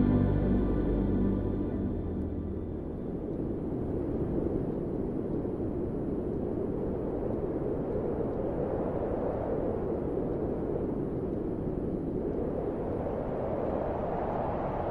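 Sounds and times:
low rushing noise: 0:00.0 - 0:14.9.

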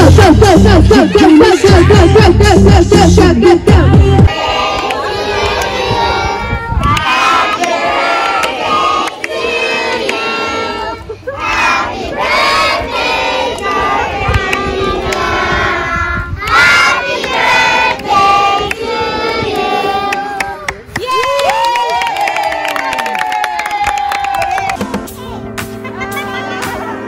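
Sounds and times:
children shouting and singing: 0:00.3 - 0:02.4, 0:04.3 - 0:08.8.

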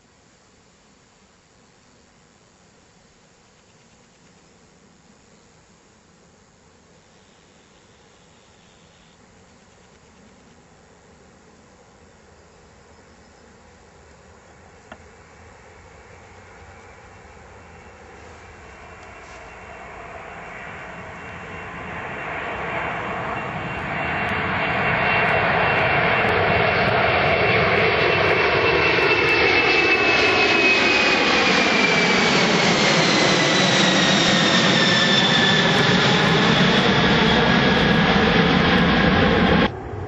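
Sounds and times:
jet engines roaring overhead: 0:14.8 - 0:40.0
high whine sliding down: 0:17.8 - 0:40.0.

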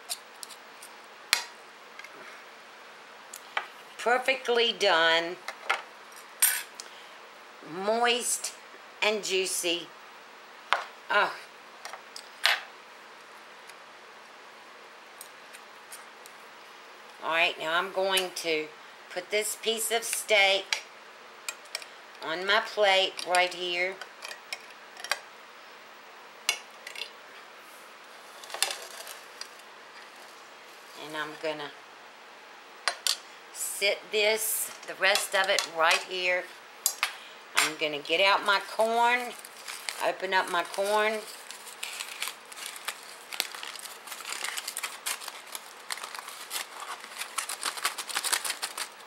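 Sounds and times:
aluminium foil crinkling: 0:28.3 - 0:31.0, 0:38.5 - 0:49.0.

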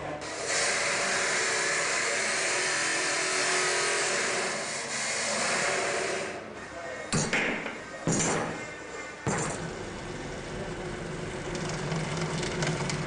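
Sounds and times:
faint machine hum: 0:00.0 - 0:13.0
machine hissing: 0:00.2 - 0:06.5.

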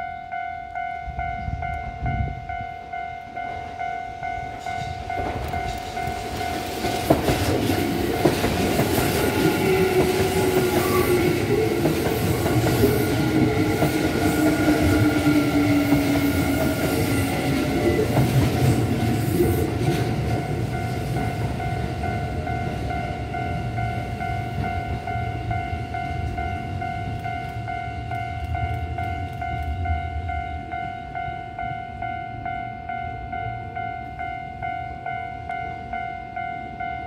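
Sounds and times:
train wheels clattering over rails: 0:04.8 - 0:21.6.

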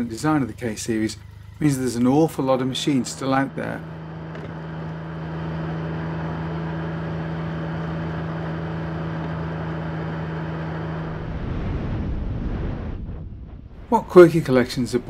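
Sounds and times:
motorcycle engine cruising: 0:00.0 - 0:11.4
low wind rumble: 0:02.1 - 0:15.0.

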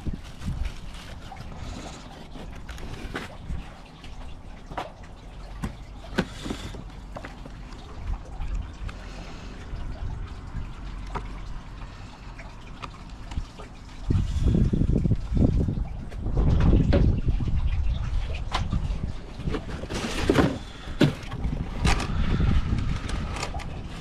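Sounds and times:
paper and cardboard rustling: 0:00.0 - 0:03.6, 0:19.4 - 0:22.1
low steady rumble: 0:00.0 - 0:24.0.

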